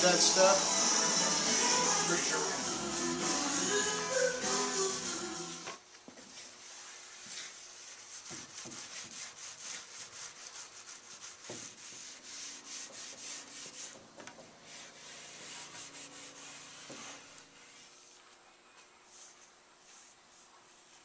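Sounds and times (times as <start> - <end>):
hand sanding wood: 6.3 - 14.0, 14.6 - 18.2.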